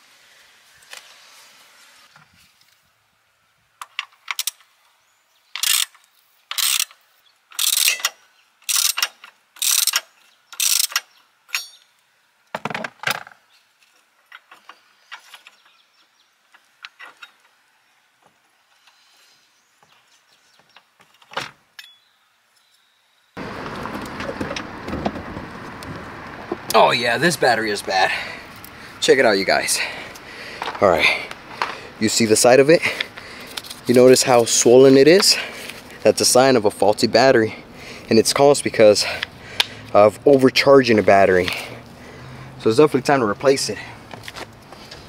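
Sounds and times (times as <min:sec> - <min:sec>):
ratchet wrench ratcheting: 0:05.6 - 0:11.0.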